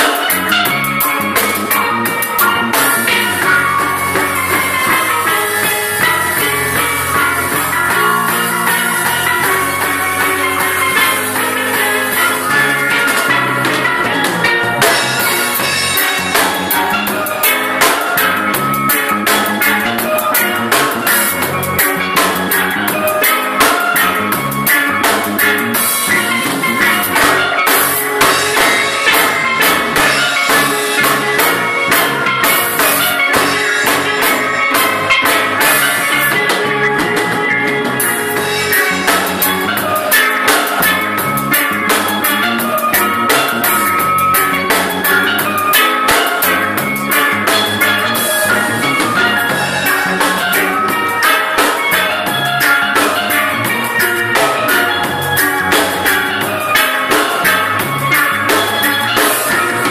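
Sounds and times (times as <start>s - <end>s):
drum kit steady beat: 0.0s - 59.9s
steel pans playing melody: 0.0s - 59.9s.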